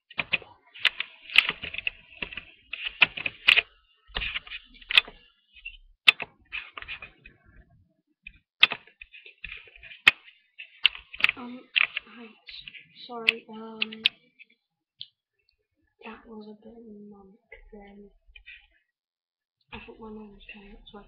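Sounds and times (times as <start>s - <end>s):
typing on computer keyboard: 0.1s - 5.2s, 6.1s - 7.2s, 8.6s - 14.2s.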